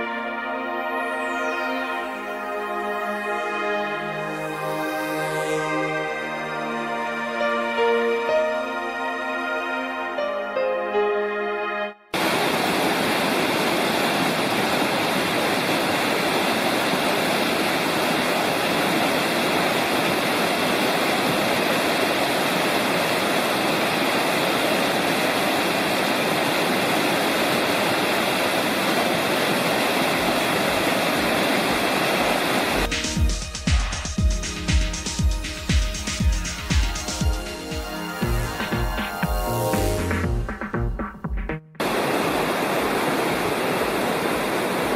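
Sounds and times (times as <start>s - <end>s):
creek rushing: 12.2s - 41.2s, 41.8s - 44.9s
music with a beat: 32.9s - 41.8s.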